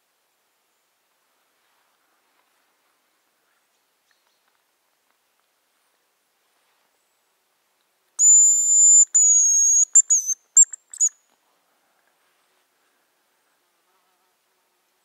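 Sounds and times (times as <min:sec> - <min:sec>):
grouse whistle song: 0:08.2 - 0:11.2.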